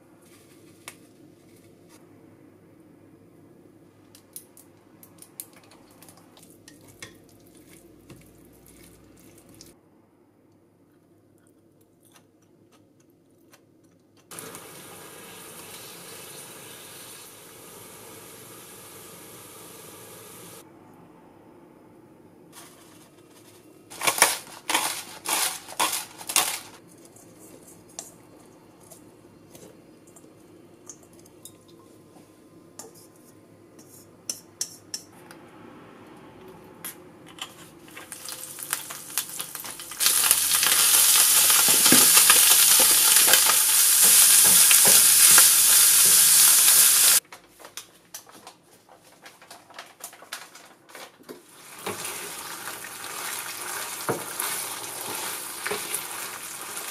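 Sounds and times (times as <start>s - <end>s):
oil sizzling in frying pan: 14.3s - 20.6s, 37.9s - 47.2s, 51.6s - 56.9s
utensils tapping steel bowl: 33.8s - 35.2s.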